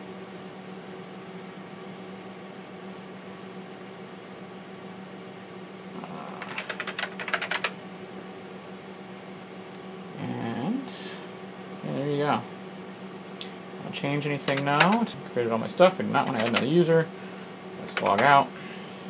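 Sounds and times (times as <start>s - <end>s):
computer hum: 4.9s - 19.0s
keyboard keystrokes: 6.4s - 7.7s, 14.4s - 15.1s, 16.2s - 16.7s, 17.9s - 18.3s.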